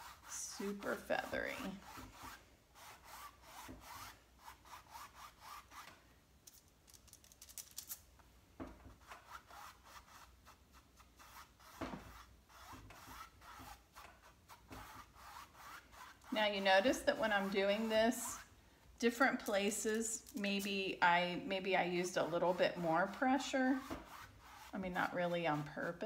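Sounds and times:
paintbrush brushing on canvas: 0.0 - 5.9, 8.9 - 18.5, 21.4 - 26.0.

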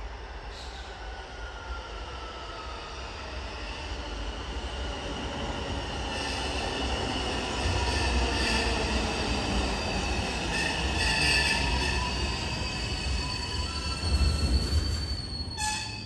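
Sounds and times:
subway train rumbling: 0.0 - 16.0.

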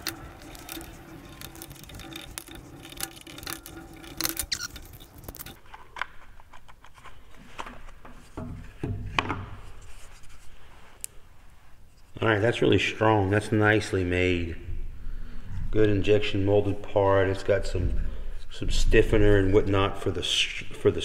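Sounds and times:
screws clicking and scraping: 0.0 - 5.7.

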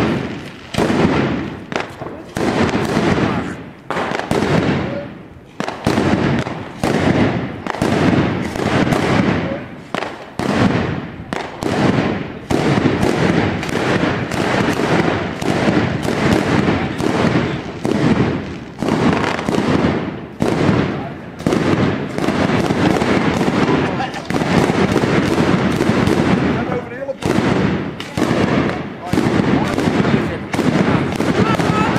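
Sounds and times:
firecracker bangs: 0.0 - 31.9.

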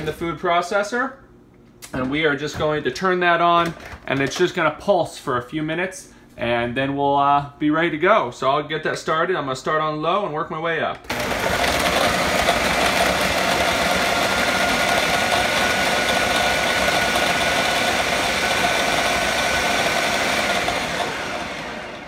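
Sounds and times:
food processor motor whirring: 11.1 - 22.0.

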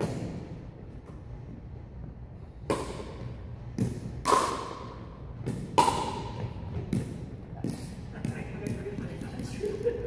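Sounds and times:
ball bouncing on hardwood court: 2.6 - 9.8
paddles hitting plastic ball: 2.6 - 9.8.

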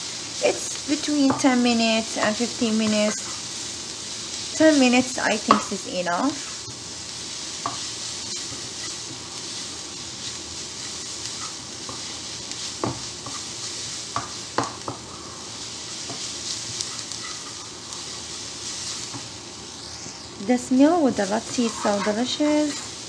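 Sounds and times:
onions sizzling in oil: 0.0 - 23.0
wooden spatula scraping a pan: 0.5 - 3.5, 7.6 - 19.3, 20.5 - 23.0.

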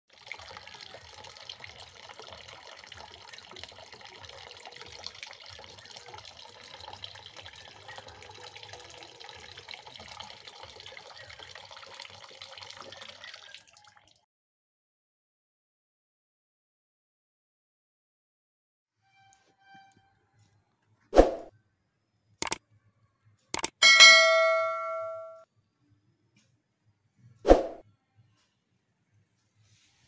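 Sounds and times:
water pouring into a bucket: 0.1 - 14.2.

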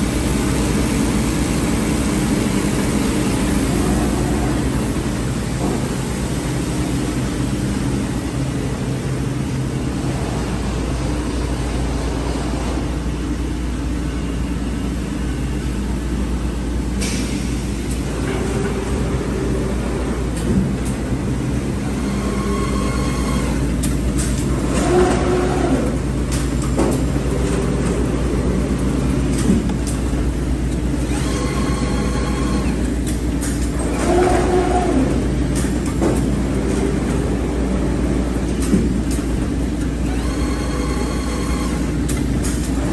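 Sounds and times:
sewing machine humming: 30.9 - 32.9, 40.1 - 41.9.

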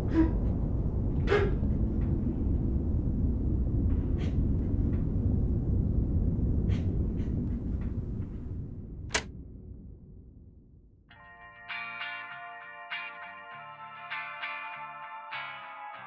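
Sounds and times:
low rumbling drone: 0.0 - 11.1.

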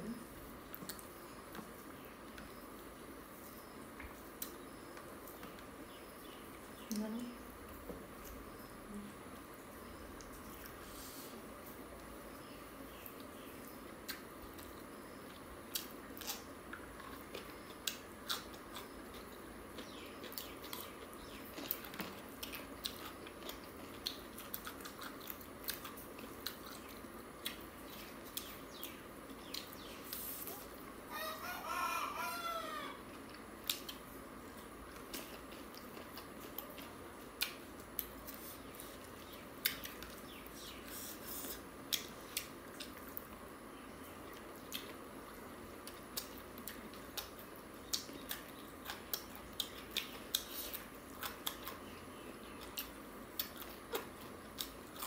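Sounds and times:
people chewing and smacking: 0.6 - 6.7, 13.0 - 31.0, 33.0 - 43.5, 44.2 - 55.0
rooster crowing: 31.1 - 33.0.

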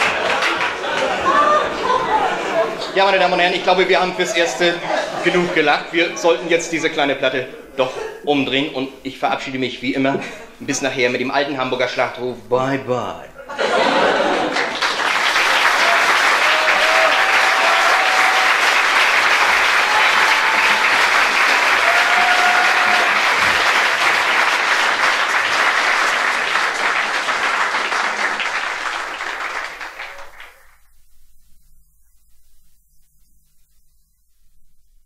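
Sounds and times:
audience applauding: 0.0 - 3.1, 14.0 - 30.8.

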